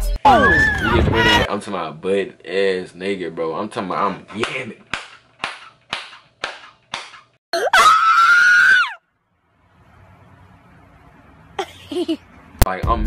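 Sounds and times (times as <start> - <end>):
woman screaming: 0.2 - 1.5, 7.6 - 9.0
hand clap: 4.4 - 7.4.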